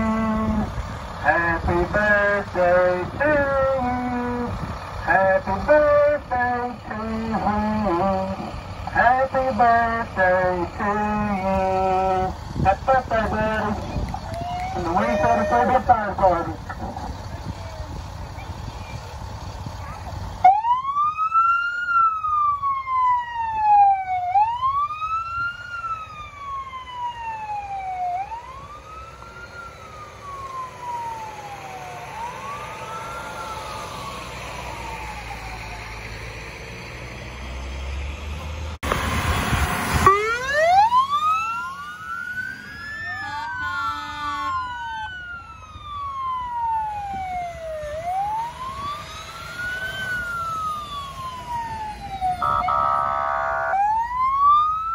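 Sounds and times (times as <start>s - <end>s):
fire engine sirens wailing: 0.0s - 54.9s
rapidly pulsing siren tone: 40.0s - 54.9s.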